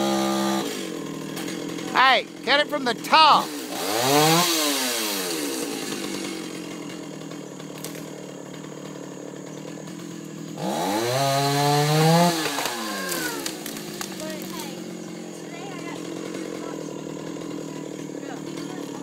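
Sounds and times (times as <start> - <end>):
chainsaw revving and idling: 0.0 - 19.0.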